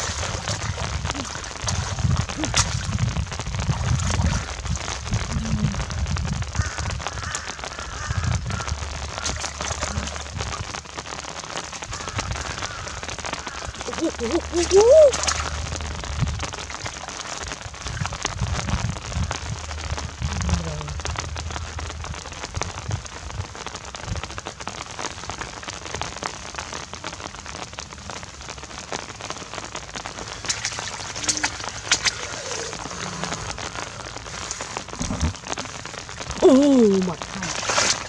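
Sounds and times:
hands splashing in water: 0.0 - 3.0, 14.5 - 15.7, 30.4 - 33.2, 37.2 - 38.0
rain on flood water: 0.0 - 38.0
short voice sound: 13.8 - 15.4, 36.4 - 37.6.

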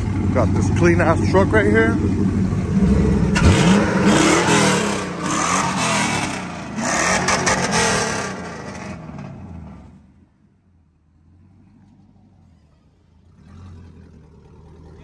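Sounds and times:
truck engine idling: 0.0 - 4.0, 10.2 - 15.0.

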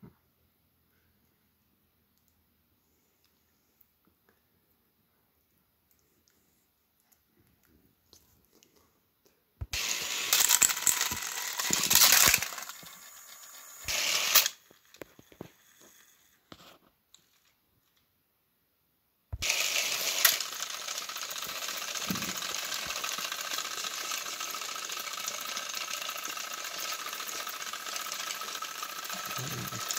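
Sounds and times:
toy train motors whirring: 9.7 - 16.6, 19.4 - 29.9.

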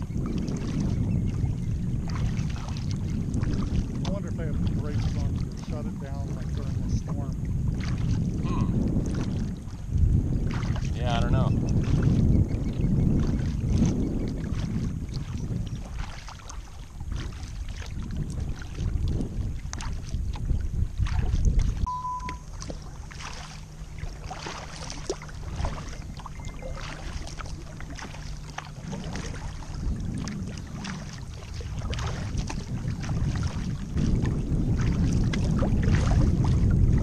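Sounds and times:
paddle splashing in water: 0.0 - 37.0
water lapping at hull: 0.0 - 37.0
wind rumbling on microphone: 0.0 - 37.0
low steady hum: 20.8 - 33.9.

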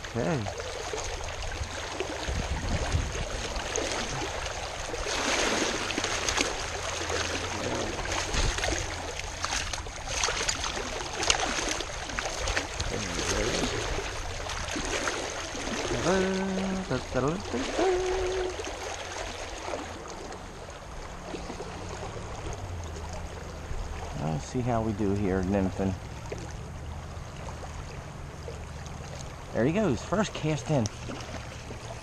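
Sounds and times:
stream water rushing: 0.0 - 32.0.

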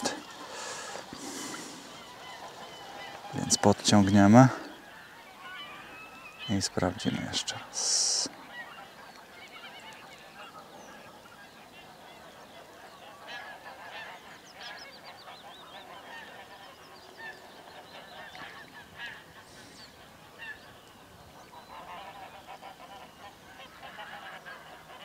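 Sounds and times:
waterfowl calling: 0.0 - 25.0.

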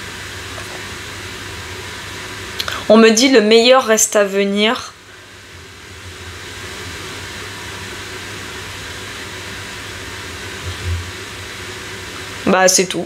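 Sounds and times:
low hum: 4.9 - 12.3
steady rushing noise: 10.4 - 11.7.

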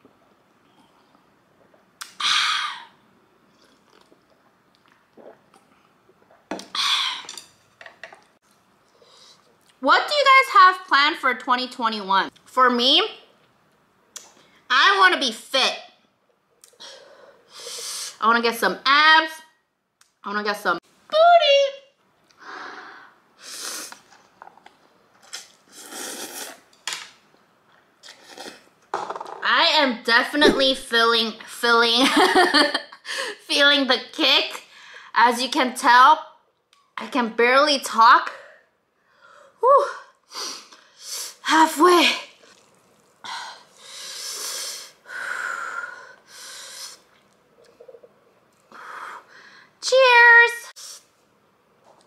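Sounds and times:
person slurping noodles: 25.2 - 26.7, 28.0 - 28.7, 42.4 - 43.1.

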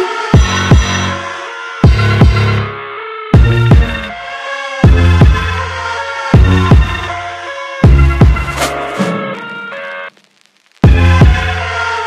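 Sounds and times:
electronic music with heavy bass: 7.8 - 9.8, 10.8 - 12.0.

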